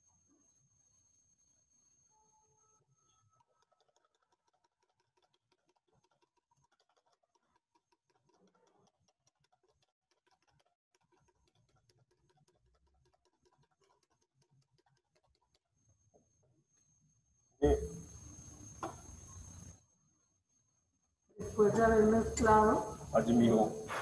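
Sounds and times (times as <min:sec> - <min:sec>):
whisk ticking against plastic bowl: 0:02.8 - 0:18.1.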